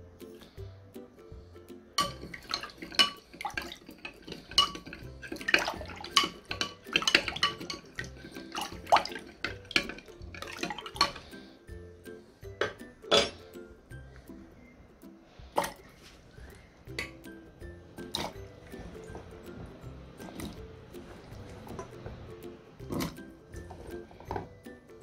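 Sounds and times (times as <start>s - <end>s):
background music: 0.0s - 25.0s
spoon clinking against glass: 2.0s - 11.2s, 12.6s - 13.4s.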